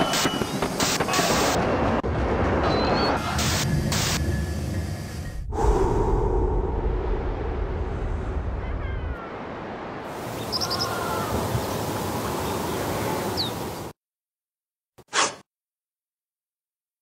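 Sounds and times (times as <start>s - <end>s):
outdoor background noise: 0.0s - 14.0s.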